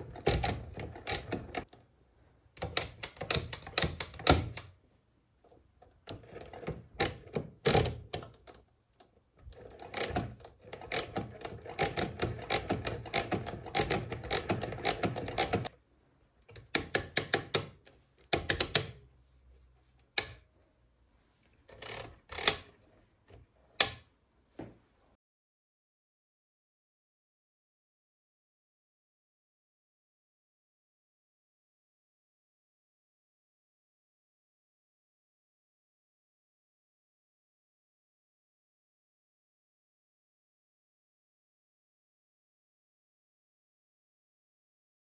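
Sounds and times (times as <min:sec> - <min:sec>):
mechanical calculator clicking: 0:00.0 - 0:01.7, 0:02.6 - 0:04.7, 0:06.1 - 0:08.6, 0:09.4 - 0:15.7, 0:16.5 - 0:19.0, 0:21.7 - 0:22.8.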